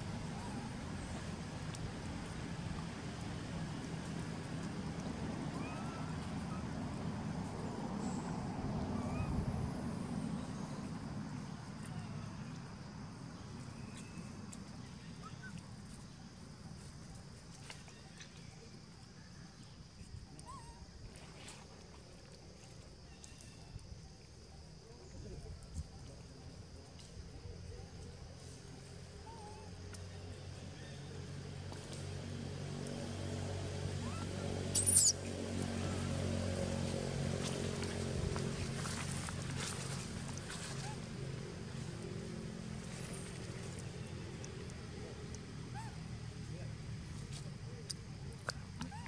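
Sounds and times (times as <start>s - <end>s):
engine humming: 0.0s - 16.8s, 28.6s - 49.0s
baby monkey squealing: 34.0s - 35.2s
high chirps: 34.7s - 35.2s.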